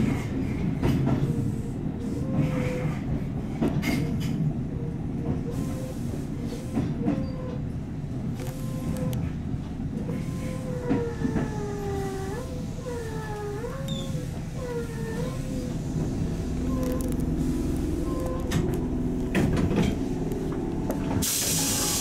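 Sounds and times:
rail-joint clacks: 0:00.0 - 0:01.6, 0:02.2 - 0:22.0
electric train rumbling: 0:00.0 - 0:22.0.

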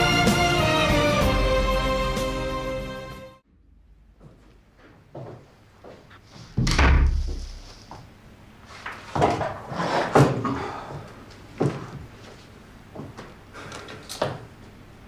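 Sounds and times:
door slamming shut: 0:06.6 - 0:07.7
knocks and thuds: 0:06.6 - 0:07.7.

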